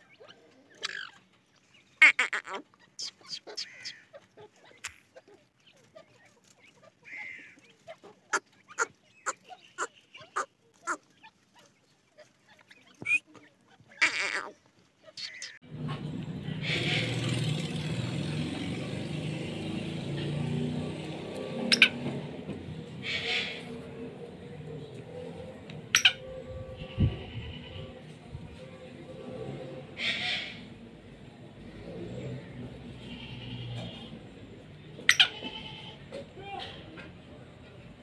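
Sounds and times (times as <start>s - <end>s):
bird clucking calls: 0.0s - 15.6s, 18.5s - 28.0s, 29.9s - 30.8s, 32.4s - 37.1s
bird chicks peeping: 0.0s - 29.2s.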